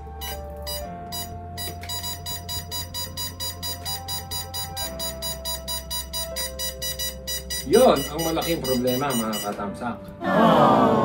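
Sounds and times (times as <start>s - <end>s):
bass line: 0.0s - 9.5s
held electronic notes: 0.0s - 9.6s
fast ticking beat: 1.9s - 9.6s.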